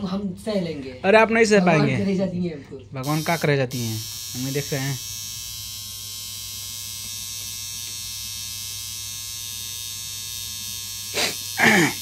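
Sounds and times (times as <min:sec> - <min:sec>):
tattoo machine buzzing: 0:03.0 - 0:12.0.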